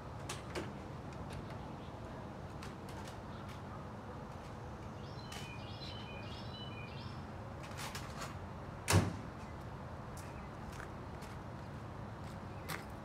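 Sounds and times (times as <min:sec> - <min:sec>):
outdoor background noise: 0:00.0 - 0:13.0
bird singing whistled notes: 0:05.0 - 0:07.2.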